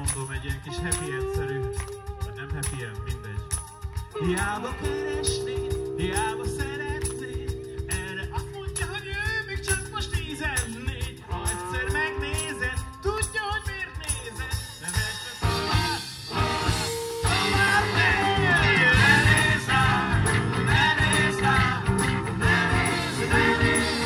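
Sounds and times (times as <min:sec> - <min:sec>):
live rock band playing: 0:00.0 - 0:24.0
man singing: 0:00.0 - 0:24.0.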